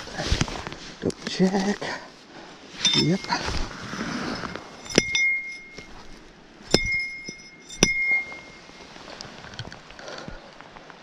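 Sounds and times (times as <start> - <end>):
high metallic ring: 2.8 - 9.1
metal club striking fish: 4.8 - 6.0, 6.7 - 8.8.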